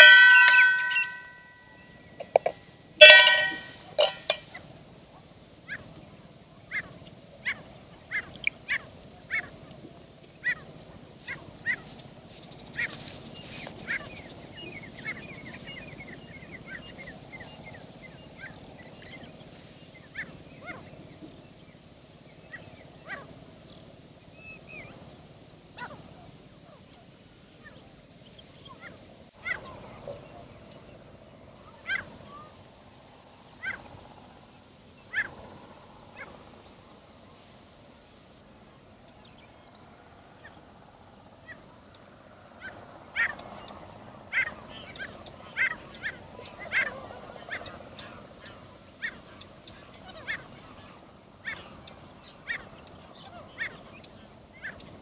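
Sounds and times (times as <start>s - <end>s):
birds chirping: 0.0s - 4.6s.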